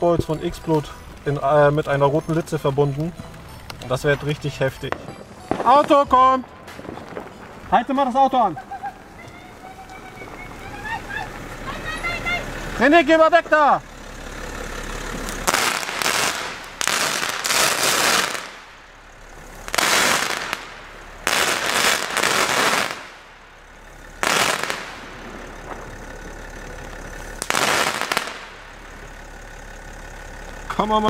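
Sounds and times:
firework crackling bursts: 0:04.9 - 0:12.8, 0:15.2 - 0:26.5, 0:27.1 - 0:29.1
firework hiss: 0:15.4 - 0:18.7, 0:19.4 - 0:23.3, 0:24.2 - 0:25.9, 0:27.3 - 0:28.6.

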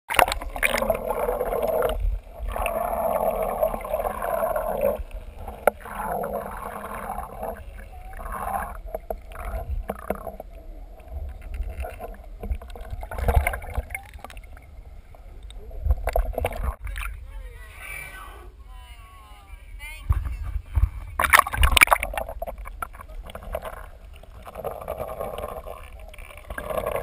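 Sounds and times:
water noise: 0:00.1 - 0:27.0
low rumble: 0:00.4 - 0:27.0
wind noise: 0:19.5 - 0:23.9.

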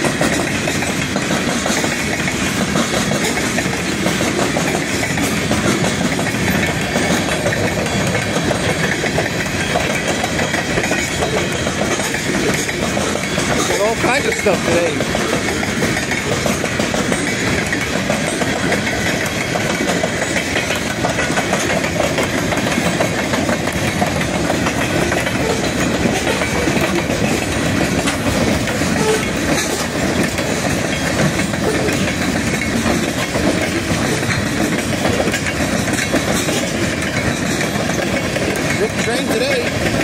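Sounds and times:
train wheels rumbling on rails: 0:00.0 - 0:40.0.

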